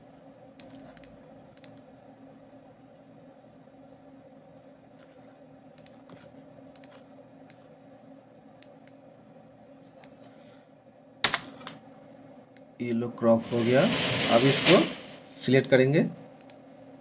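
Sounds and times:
steady low hum: 0.0s - 17.0s
computer mouse clicks: 0.6s - 1.9s, 5.8s - 7.6s, 8.6s - 9.0s, 16.4s - 16.6s.

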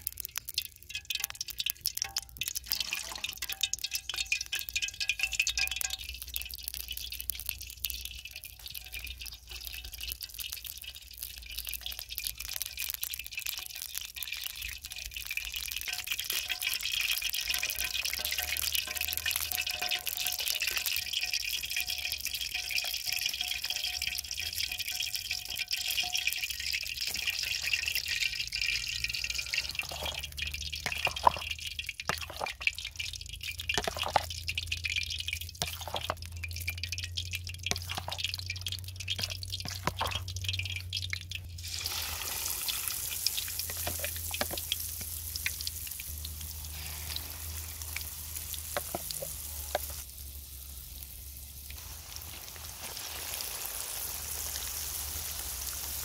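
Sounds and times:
wet drips and clicks: 0.0s - 41.6s, 43.2s - 46.6s
eggs sizzling in oil: 0.0s - 56.0s
oil hissing in a wok: 41.5s - 56.0s.

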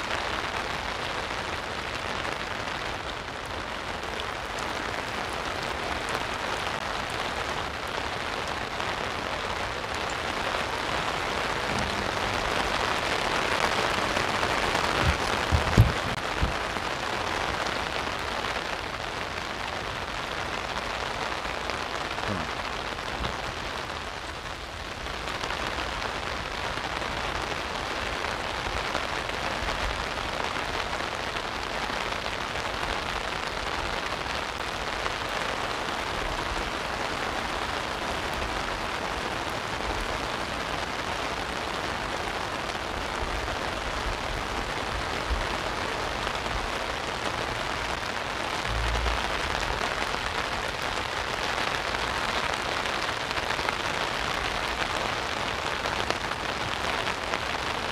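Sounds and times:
rain pattering on an umbrella: 0.0s - 57.9s
low rumble: 48.6s - 50.3s.

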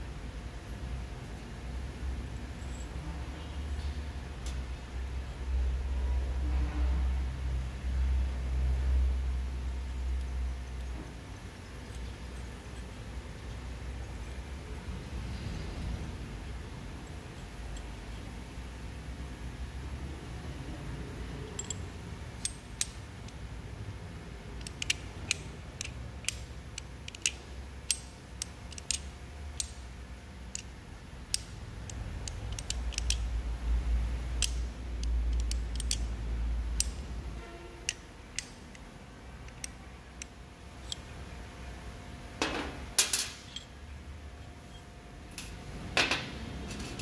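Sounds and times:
metal gear parts clicking: 21.5s - 23.4s, 24.6s - 29.8s, 30.5s - 33.3s, 34.3s - 36.2s.

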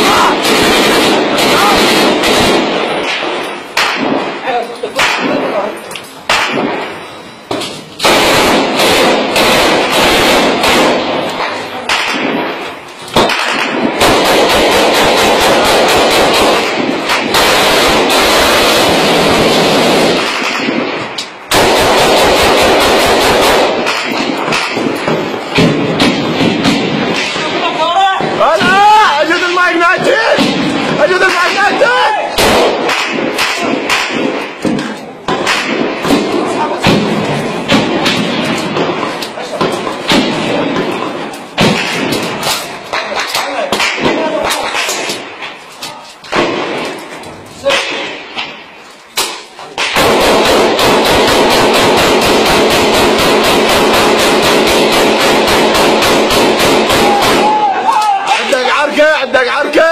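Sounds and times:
people shouting: 0.0s - 0.6s, 27.6s - 30.4s, 31.1s - 32.4s, 56.8s - 58.9s
automatic rifle fire: 0.0s - 5.6s, 6.3s - 6.9s, 8.0s - 27.8s, 30.3s - 43.0s, 49.2s - 57.9s
gunshots: 0.0s - 45.7s, 46.3s - 59.9s.

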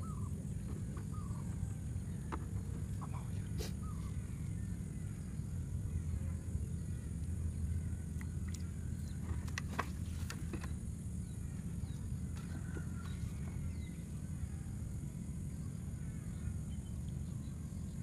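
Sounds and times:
steady low rumble: 0.0s - 18.0s
faint chirps: 2.9s - 9.3s.

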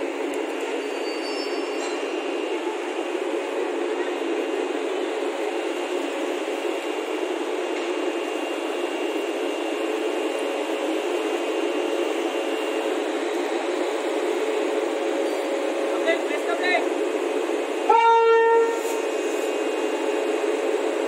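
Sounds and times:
faint high whine: 0.0s - 16.6s
locomotive humming and hissing: 0.0s - 21.0s.

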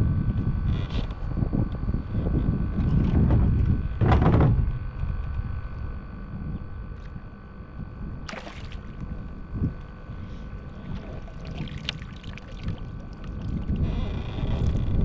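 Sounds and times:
wind on microphone: 0.0s - 15.0s
water splash: 8.3s - 9.0s, 11.2s - 13.5s
water sloshing: 8.3s - 9.2s, 10.8s - 13.9s.

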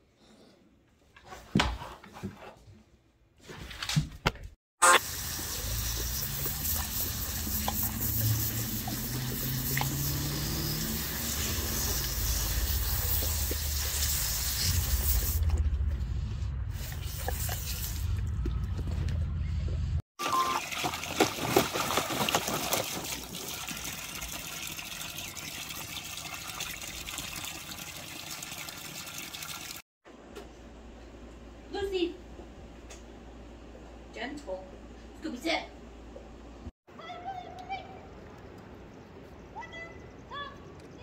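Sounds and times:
knocks and scuffles: 1.2s - 2.8s
hose nozzle spraying water: 4.8s - 15.6s
low rumble: 14.5s - 20.0s.

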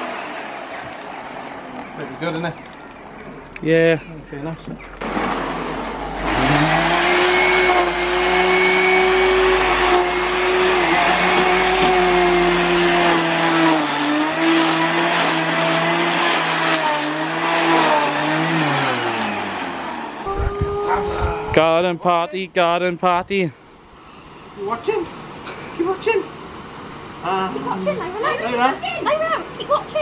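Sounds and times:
electric grass trimmer cutting: 5.0s - 21.0s.

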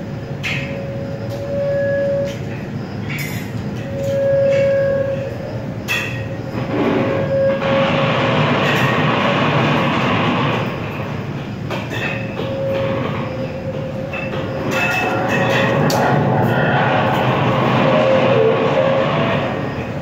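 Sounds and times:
dense rumbling noise: 6.4s - 11.7s, 12.6s - 20.0s.

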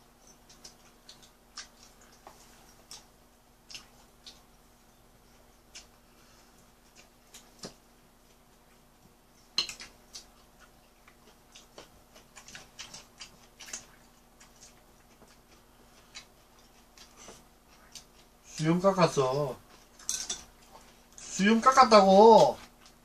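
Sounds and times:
chopsticks clicking on plates: 9.6s - 10.3s, 20.0s - 20.5s.

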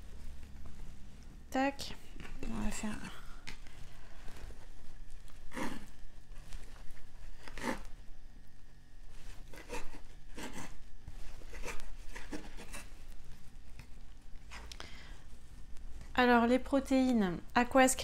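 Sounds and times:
knife cutting on wooden board: 7.4s - 7.9s, 9.4s - 12.9s.

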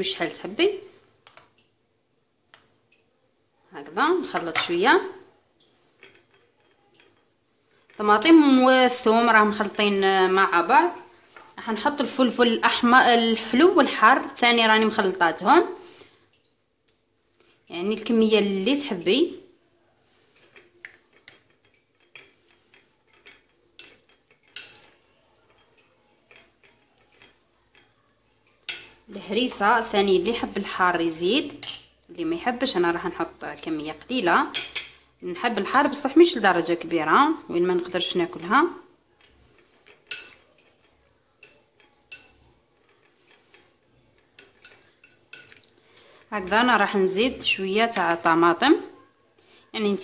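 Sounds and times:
spoon stirring in sauce: 4.1s - 15.2s, 18.8s - 36.9s, 37.6s - 48.9s
spoon clinking against bowl: 20.5s - 29.6s, 34.5s - 35.2s, 39.2s - 43.6s, 44.2s - 45.8s.

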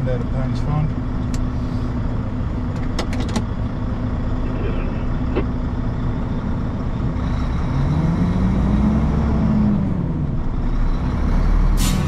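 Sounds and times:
truck diesel engine rumbling: 0.0s - 12.0s.

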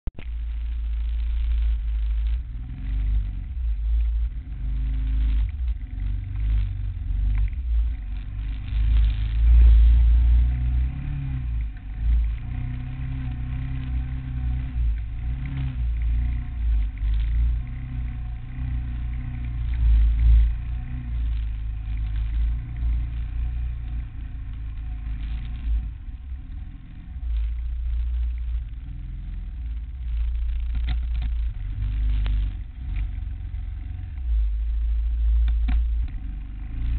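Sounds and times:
quad bike engine revving: 4.4s - 27.3s.

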